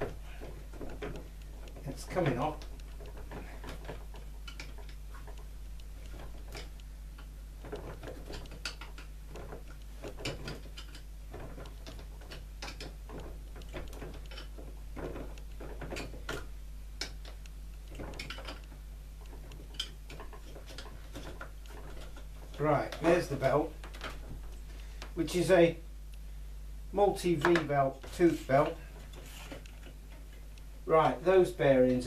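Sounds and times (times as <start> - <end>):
clicks and knocks on plastic: 0.0 - 25.2.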